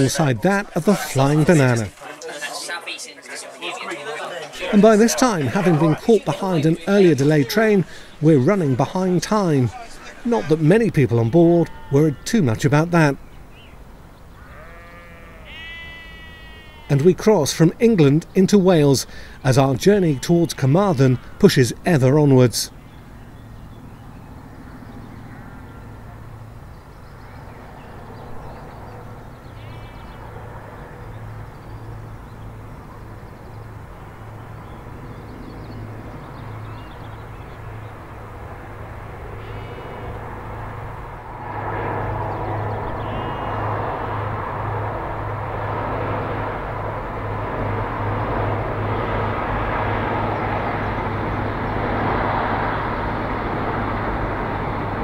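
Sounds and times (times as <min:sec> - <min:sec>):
birds chirping: 0:00.0 - 0:55.0
diesel train engine drone: 0:37.3 - 0:55.0.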